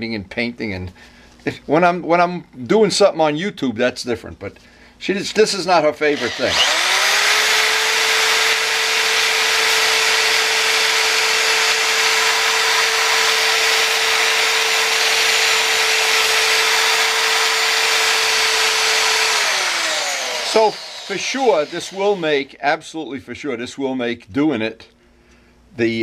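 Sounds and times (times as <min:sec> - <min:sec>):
electric rotary sanding tool whining: 0:06.1 - 0:22.4.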